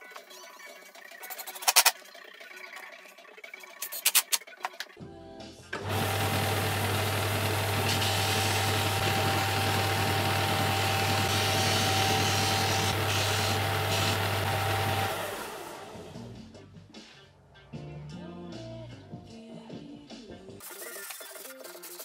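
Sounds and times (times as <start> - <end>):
sander humming and whining: 5.8 - 16.0.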